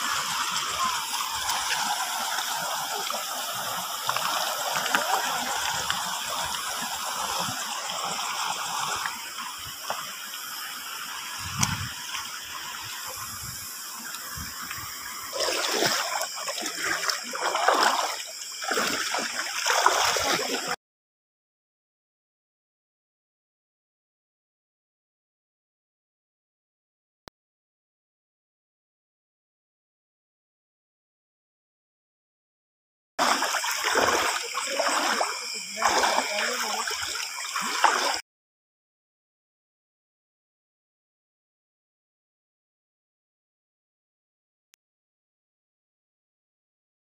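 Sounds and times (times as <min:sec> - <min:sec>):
water sloshing around wading legs: 0:00.0 - 0:10.6, 0:14.1 - 0:20.8, 0:33.2 - 0:38.2.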